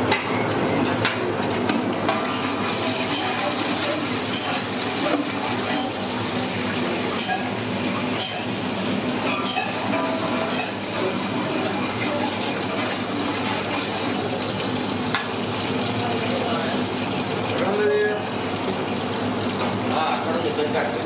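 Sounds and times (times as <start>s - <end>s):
kitchen rumble: 0.0s - 21.0s
ladle clinking against pot: 9.2s - 10.8s.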